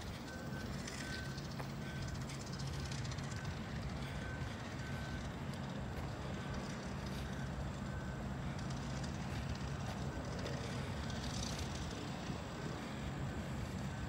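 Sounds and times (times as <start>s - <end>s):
distant vehicles humming: 0.0s - 14.0s.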